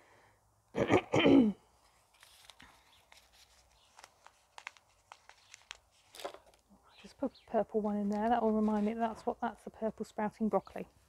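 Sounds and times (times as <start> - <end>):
paper packet rustling: 1.8 - 7.2, 7.8 - 9.4.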